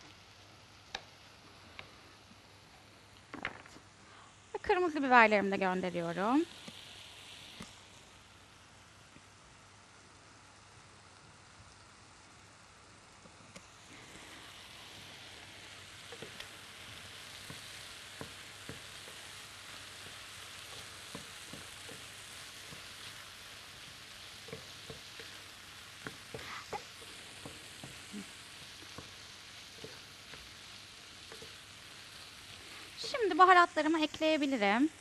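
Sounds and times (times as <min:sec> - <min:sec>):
peppers sizzling in pan: 0:00.0 - 0:35.0.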